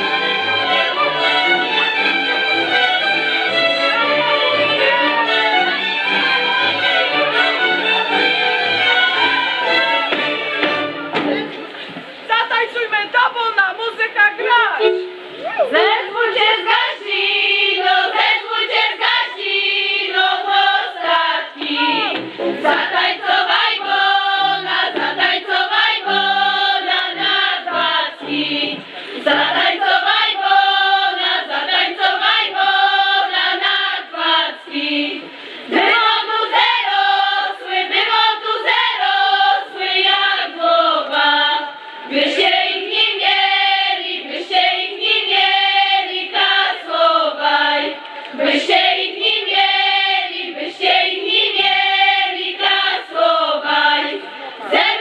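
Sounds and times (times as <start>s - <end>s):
women singing unaccompanied: 15.6s - 55.0s.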